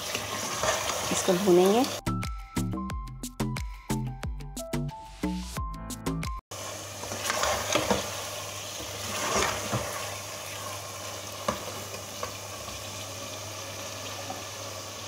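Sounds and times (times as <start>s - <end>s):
meat sizzling in a pan: 0.0s - 2.0s, 6.5s - 15.0s.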